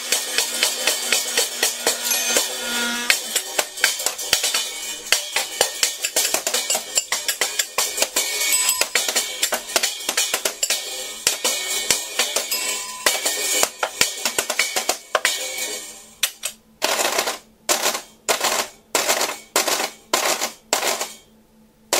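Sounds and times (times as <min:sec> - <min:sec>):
cymbal-like hits: 0:01.6 - 0:06.0, 0:07.9 - 0:16.0.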